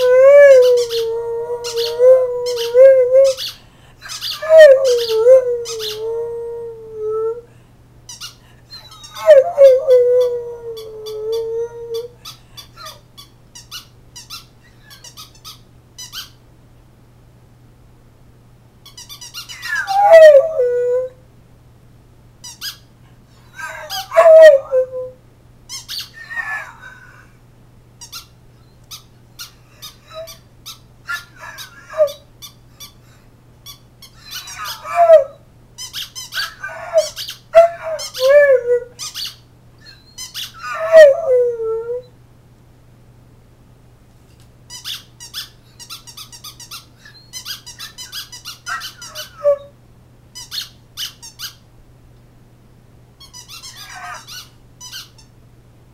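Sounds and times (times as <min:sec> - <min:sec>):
dog howling in squeaky yowls: 0:00.0 - 0:07.4, 0:08.7 - 0:12.2, 0:19.3 - 0:21.2, 0:23.5 - 0:25.2, 0:25.8 - 0:27.2, 0:29.7 - 0:30.4, 0:31.1 - 0:32.2, 0:34.1 - 0:35.4, 0:36.0 - 0:42.1, 0:47.0 - 0:49.7, 0:53.4 - 0:55.1.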